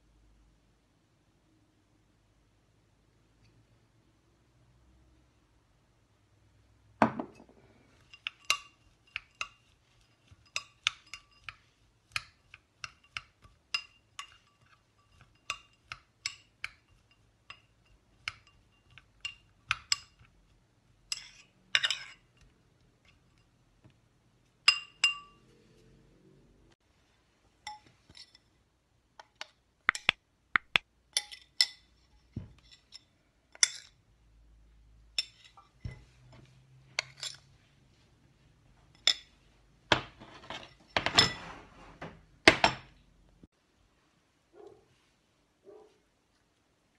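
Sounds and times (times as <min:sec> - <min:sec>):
spoon clinking against glass bowl: 0:08.0 - 0:20.3, 0:24.7 - 0:25.4.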